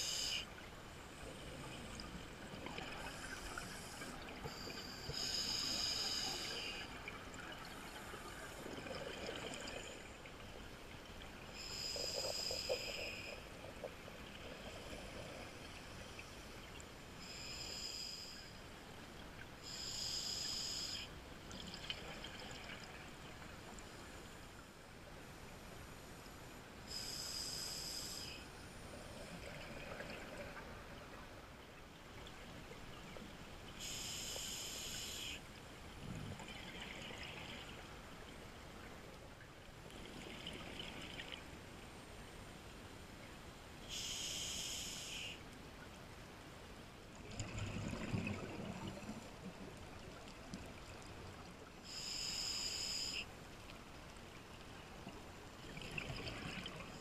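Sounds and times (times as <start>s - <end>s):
faint steady hiss: 0.0s - 57.0s
underwater exhaled bubbles: 6.2s - 10.2s, 47.2s - 51.3s, 55.6s - 57.0s.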